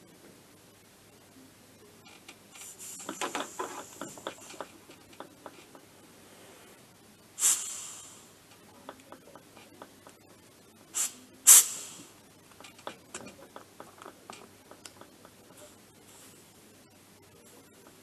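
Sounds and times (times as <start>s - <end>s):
pressure gauge and hose rattling: 2.6s - 5.8s
short hiss of air: 7.4s - 8.3s, 11.0s - 12.2s.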